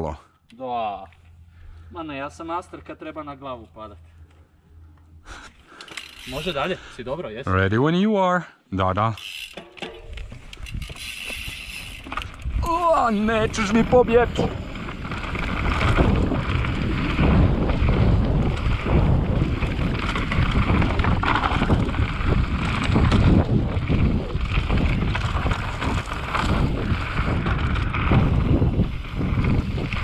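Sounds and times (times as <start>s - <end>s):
mountain bike rattling on dirt trail: 5.3s - 7.2s, 9.1s - 30.0s
wind buffeting microphone: 10.1s - 30.0s
bike knocking over bumps: 14.9s - 29.8s.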